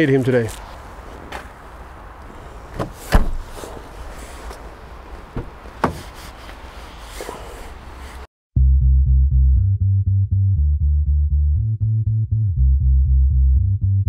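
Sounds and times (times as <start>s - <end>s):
knocks and thumps in car: 2.7s - 3.6s, 5.3s - 6.2s
background music with bass: 8.6s - 14.0s.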